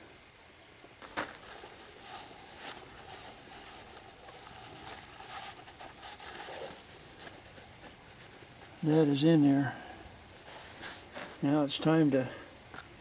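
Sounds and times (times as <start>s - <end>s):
towel rustling and rubbing: 1.2s - 9.2s.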